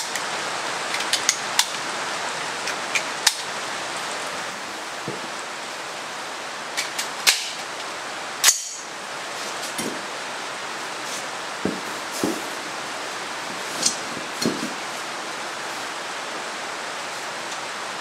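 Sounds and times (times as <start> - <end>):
steady hiss: 0.0 - 18.0
sharp metallic clack: 8.4 - 8.9
dull knocks on concrete floor: 11.6 - 12.4.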